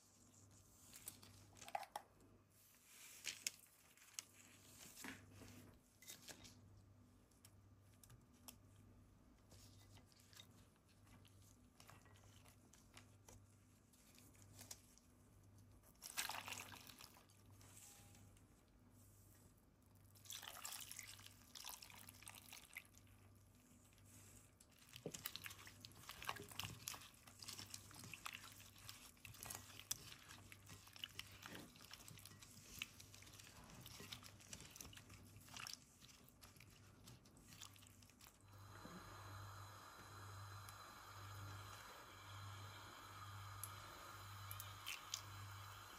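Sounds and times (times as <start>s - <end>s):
hand squishing and mixing food: 0.0s - 45.9s
liquid pouring into a bowl: 20.2s - 23.0s
faint low hum: 23.0s - 45.9s.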